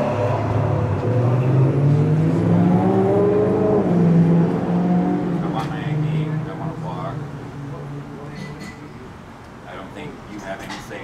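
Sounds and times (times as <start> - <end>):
car engine accelerating: 0.0 - 8.3.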